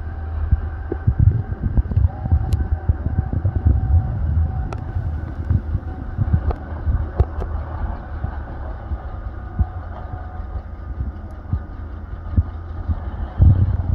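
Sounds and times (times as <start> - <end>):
jet engines at takeoff thrust: 0.0 - 13.9
wind thumps on microphone: 0.5 - 8.3, 12.3 - 13.9.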